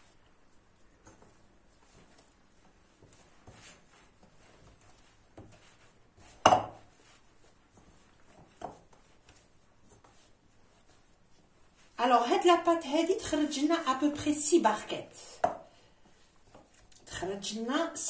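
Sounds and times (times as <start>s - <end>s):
hands kneading dough: 0.0s - 18.0s.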